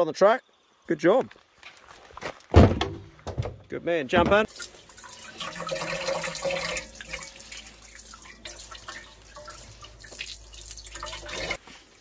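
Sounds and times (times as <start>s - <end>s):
water splashing in a metal pot: 4.4s - 11.6s.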